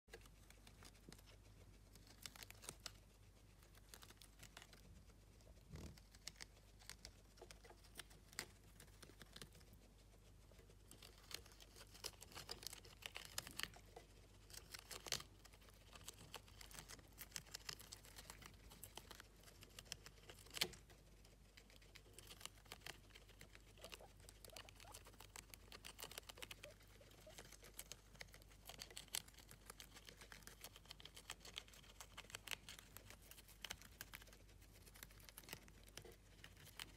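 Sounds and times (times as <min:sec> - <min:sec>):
guinea pigs chewing lettuce: 0:00.1 - 0:36.9.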